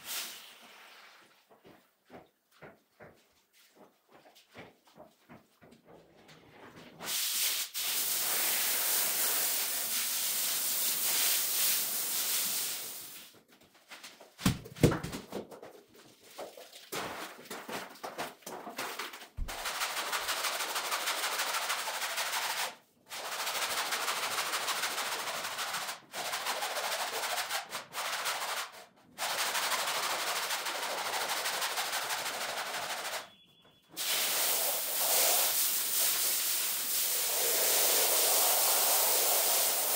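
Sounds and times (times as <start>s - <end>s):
pressure washer spray hissing: 7.1s - 13.2s, 34.0s - 39.9s
sharp knocks and wet thumps: 14.4s - 15.5s, 19.4s - 19.6s.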